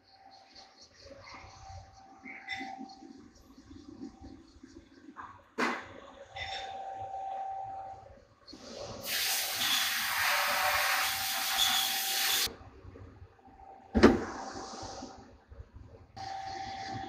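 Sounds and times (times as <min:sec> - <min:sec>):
faint machine whine: 0:00.0 - 0:08.8, 0:11.5 - 0:15.2, 0:16.0 - 0:17.0
loud hiss: 0:09.0 - 0:12.5.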